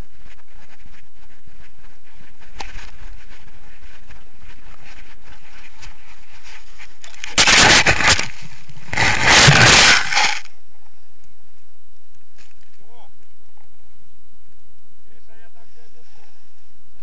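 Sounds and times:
camera microphone rustling and scraping: 0:00.0 - 0:10.5.

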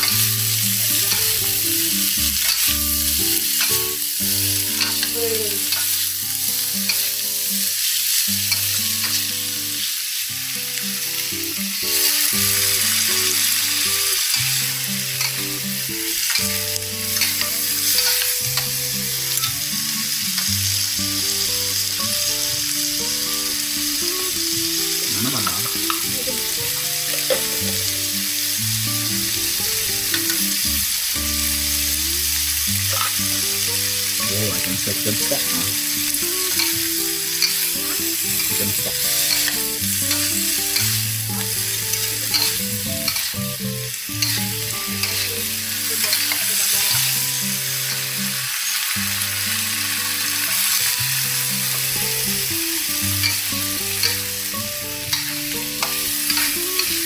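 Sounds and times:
food sizzling in a wok: 0:00.0 - 0:57.0
spatula scraping a pan: 0:42.0 - 0:43.4.

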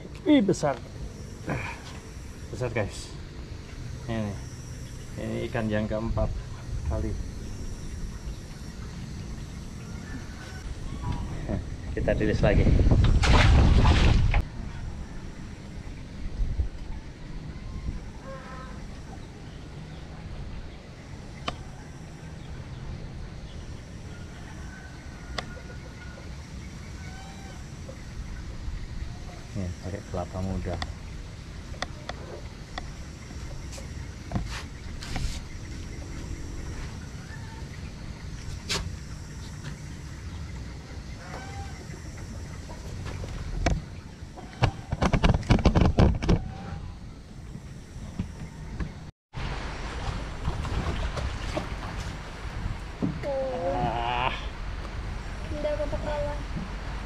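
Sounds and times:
low outdoor rumble: 0:00.0 - 0:57.0
sharp clicks and knocks: 0:44.6 - 0:46.4
steady low rumble: 0:46.4 - 0:57.0.

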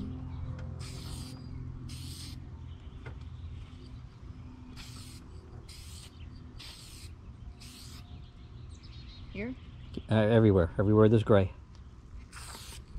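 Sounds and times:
spray paint can hissing: 0:00.8 - 0:02.4, 0:04.7 - 0:08.1, 0:12.3 - 0:12.9.

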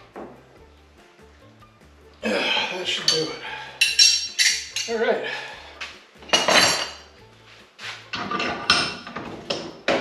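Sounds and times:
metal wrenches clinking: 0:02.9 - 0:05.1, 0:06.2 - 0:07.1, 0:08.1 - 0:10.0.

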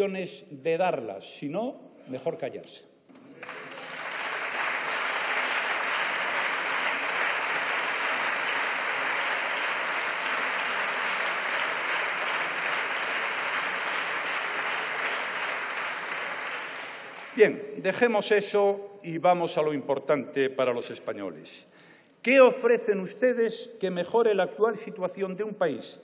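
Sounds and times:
crowd applauding: 0:03.1 - 0:17.5.

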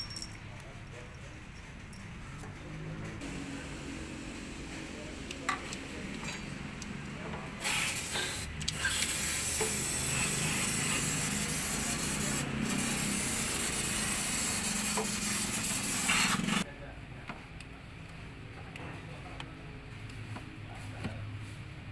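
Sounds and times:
aerosol spray hissing: 0:07.6 - 0:16.6.

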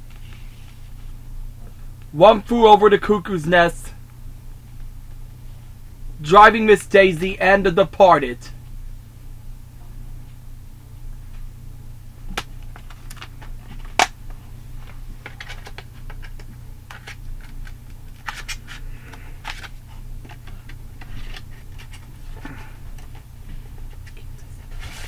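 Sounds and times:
low hum: 0:00.0 - 0:25.0
plastic cases clicking and snapping: 0:12.3 - 0:14.2.

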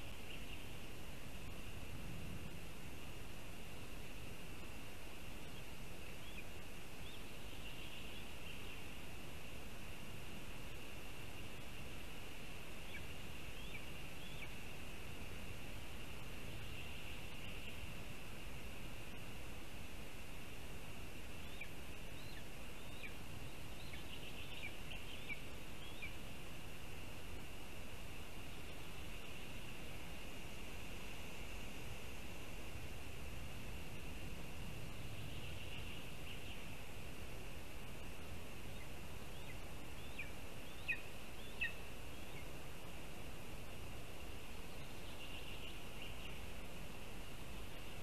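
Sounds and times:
bird chirping: 0:00.0 - 0:00.9, 0:05.4 - 0:09.0, 0:12.8 - 0:14.7, 0:16.0 - 0:18.0, 0:21.3 - 0:26.4, 0:34.8 - 0:36.8, 0:38.6 - 0:42.7, 0:44.2 - 0:48.0
high-pitched background hiss: 0:00.0 - 0:48.0.

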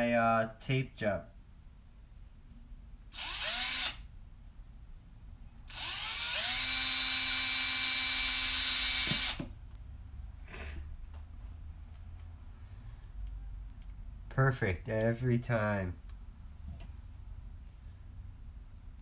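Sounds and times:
cordless drill whining: 0:03.1 - 0:04.1, 0:05.7 - 0:09.5.

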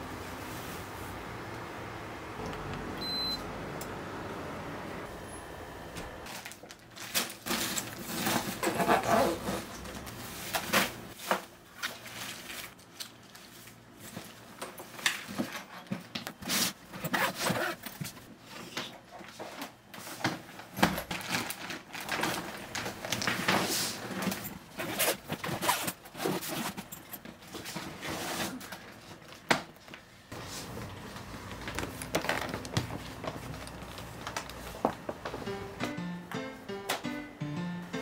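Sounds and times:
clothes and plastic bags rustling: 0:06.2 - 0:35.7.

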